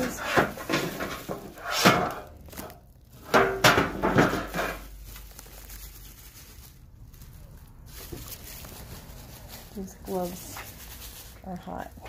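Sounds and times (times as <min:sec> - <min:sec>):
metal tin knocks and scrapes: 0:00.0 - 0:02.3, 0:03.2 - 0:04.9
papers rustling: 0:00.0 - 0:12.0.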